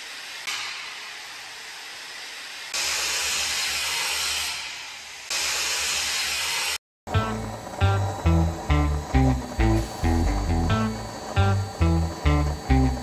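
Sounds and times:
hissing machinery and air: 0.0 - 13.0
low hum: 7.1 - 13.0.

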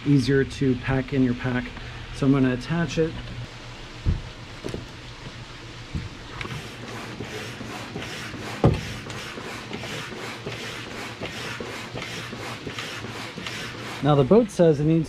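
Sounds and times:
thump: 4.0 - 4.9
hand pump hissing air: 6.4 - 14.2.

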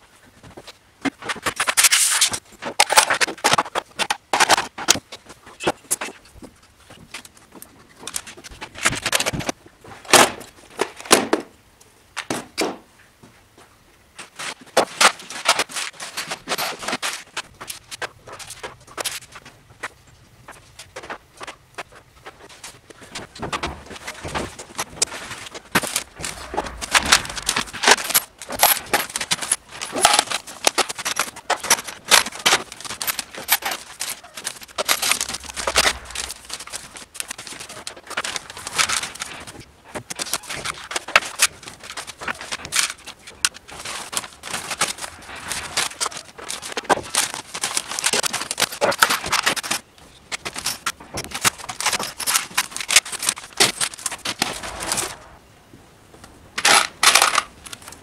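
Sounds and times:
screws clinking in plastic bins: 15.4 - 17.2, 23.6 - 39.5, 40.1 - 54.6, 56.6 - 57.9
paper bags rustling: 21.0 - 39.6, 40.2 - 55.4.

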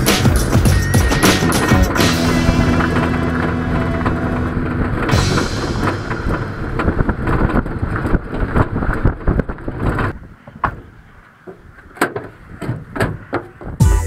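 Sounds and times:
pickup truck rumbling over dirt: 0.0 - 10.2.

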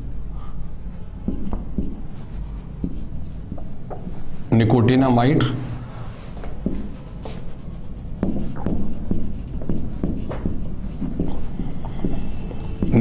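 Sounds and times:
marker scratching on whiteboard: 1.2 - 4.3, 6.4 - 13.0.

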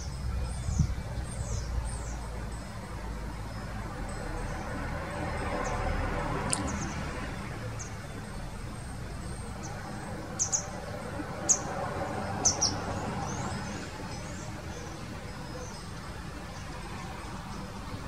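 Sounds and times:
goldfinch chirps: 6.5 - 17.8.

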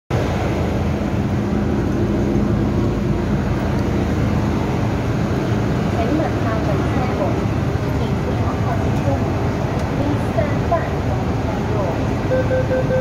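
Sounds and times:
train low drone: 0.1 - 13.0
faint steady tones: 11.8 - 13.0.

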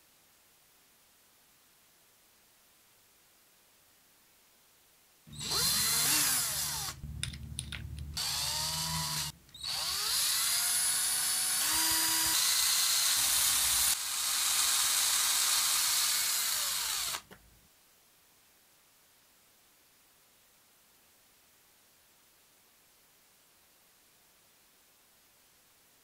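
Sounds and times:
drill motor whine: 5.3 - 17.3.

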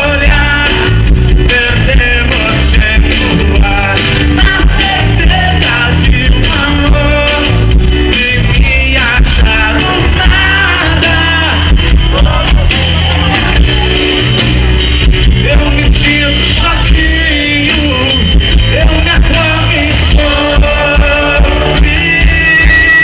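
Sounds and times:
drum kit beat: 0.0 - 23.0
person singing: 0.0 - 23.0.

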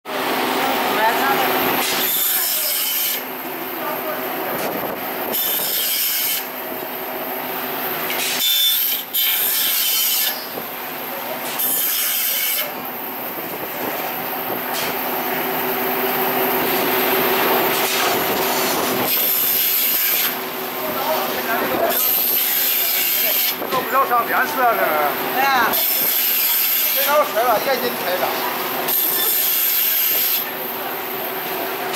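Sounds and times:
band saw grating through metal: 1.8 - 3.3, 5.3 - 6.6, 8.1 - 10.6, 11.3 - 12.8, 17.7 - 20.4, 21.0 - 23.7, 25.6 - 30.6
saw motor humming: 5.2 - 31.9.

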